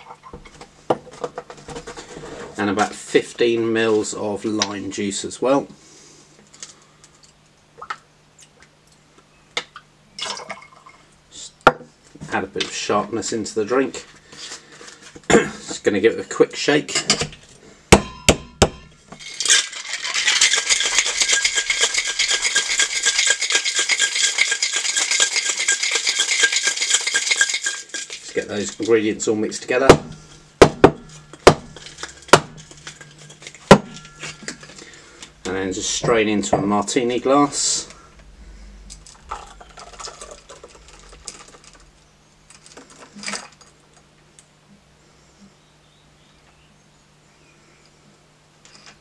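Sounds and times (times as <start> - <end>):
ice rattling in cocktail shaker: 19.2 - 29.2, 31.4 - 34.9, 39.1 - 41.9
palm knocking shaker tin: 20.0 - 28.9.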